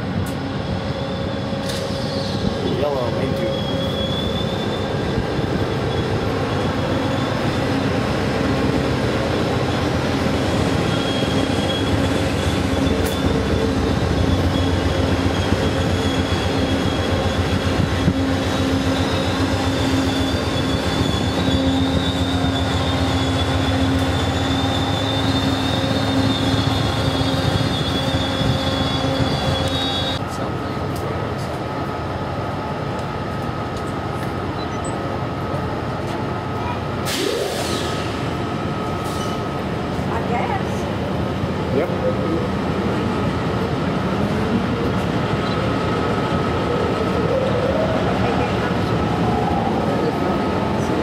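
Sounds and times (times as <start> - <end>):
train cars rumbling past: 0.0 - 51.0
wheel squeal: 0.7 - 7.8, 9.6 - 30.2.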